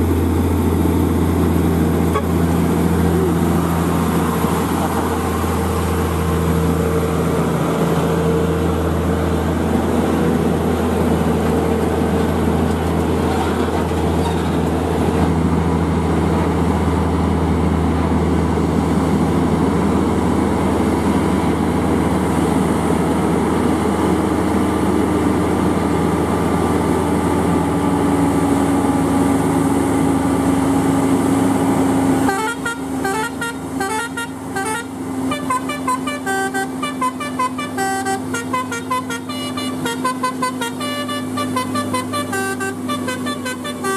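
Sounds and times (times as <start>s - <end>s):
diesel truck engine roaring: 0.0s - 43.9s
short horn toots: 2.1s - 2.4s, 32.3s - 43.9s.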